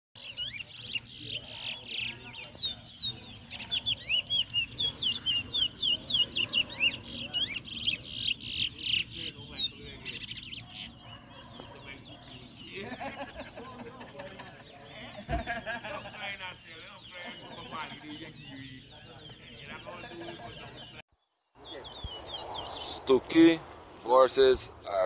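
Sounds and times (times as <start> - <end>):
finch singing whistled notes: 0.2 - 13.1.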